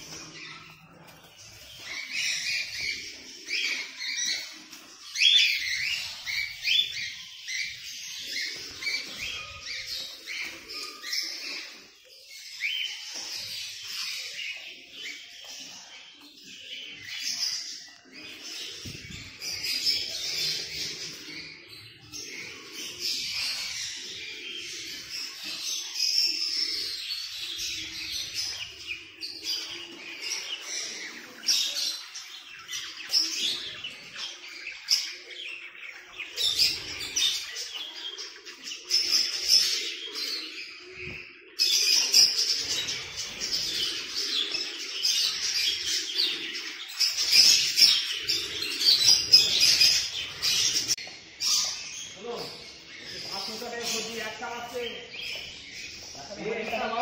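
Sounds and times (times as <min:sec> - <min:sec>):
small birds chirping and twittering: 0:00.0 - 0:57.0.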